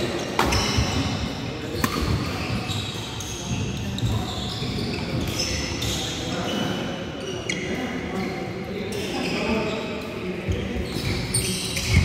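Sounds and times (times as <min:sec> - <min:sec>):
shoes squeaking on floor: 0:00.2 - 0:01.2, 0:01.8 - 0:08.4, 0:09.0 - 0:12.0
racket striking shuttlecock: 0:01.8 - 0:02.3.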